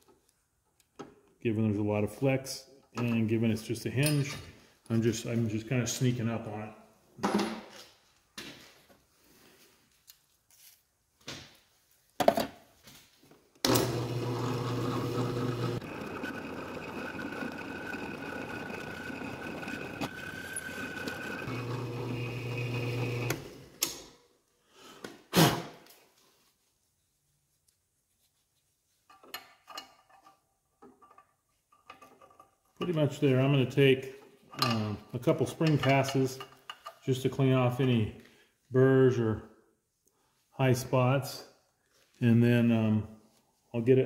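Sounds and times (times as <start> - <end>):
drill press humming: 13.7 - 23.6.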